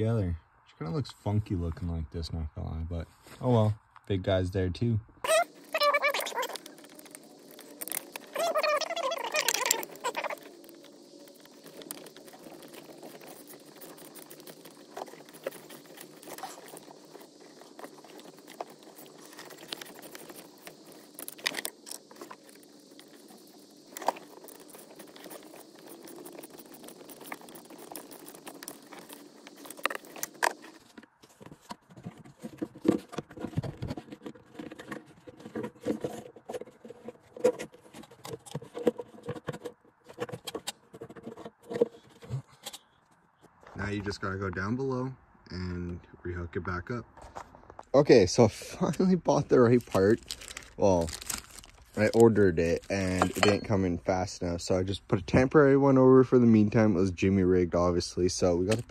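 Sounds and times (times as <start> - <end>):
metal fittings and tools rattling: 53.0 - 53.8.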